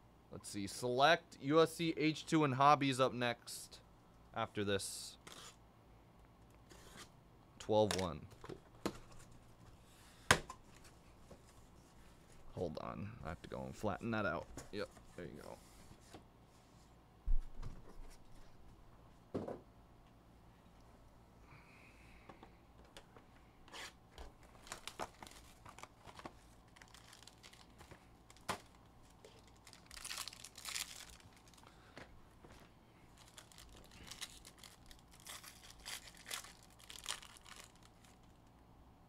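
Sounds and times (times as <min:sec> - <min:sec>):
foil pack crinkling and tearing: 0:24.4 - 0:31.9, 0:33.1 - 0:38.4.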